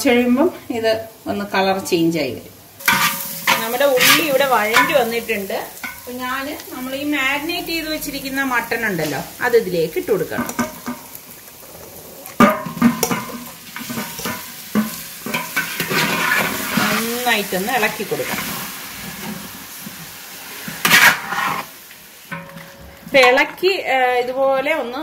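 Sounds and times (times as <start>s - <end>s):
hot oil sizzling: 0.0s - 25.0s
metal ladle scraping and knocking pot: 2.8s - 5.0s, 10.3s - 11.1s, 12.3s - 17.1s, 20.7s - 21.7s, 22.3s - 23.4s.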